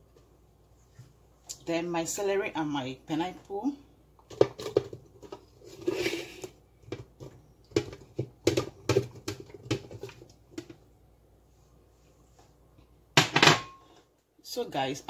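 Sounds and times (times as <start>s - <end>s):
fruit pieces knocking into blender jar: 6.9s - 10.7s.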